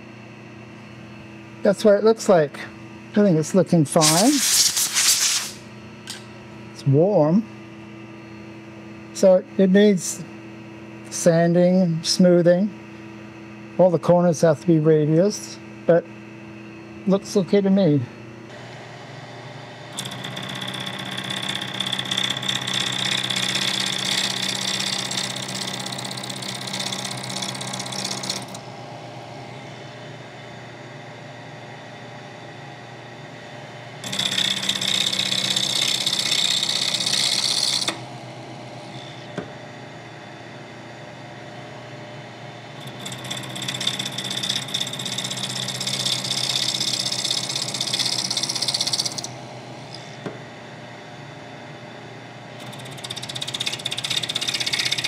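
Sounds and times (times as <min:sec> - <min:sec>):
milling machine spindle hum: 0:00.0 - 0:55.0
high-pitched metal cutting: 0:04.0 - 0:05.6, 0:34.0 - 0:38.0, 0:42.8 - 0:49.3.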